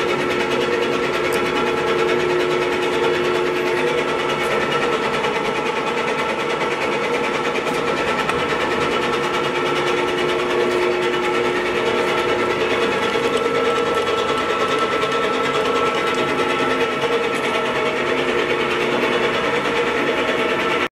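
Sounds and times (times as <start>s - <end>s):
lathe whirring: 0.0s - 20.9s.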